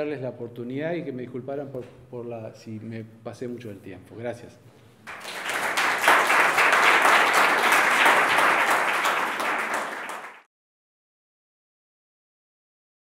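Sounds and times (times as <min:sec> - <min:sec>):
audience applauding: 0:05.1 - 0:10.5.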